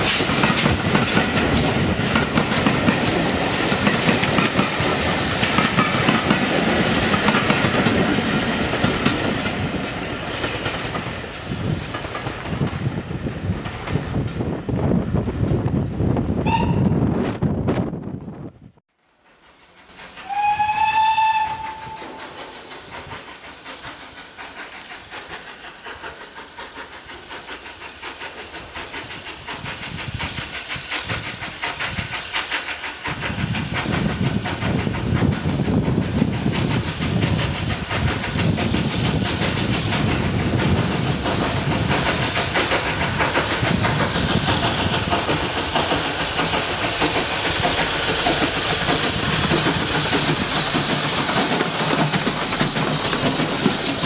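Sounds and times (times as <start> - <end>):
steam locomotive exhaust: 0.0 - 17.2, 19.0 - 54.0
steam locomotive whistle: 16.4 - 17.0, 20.2 - 22.4.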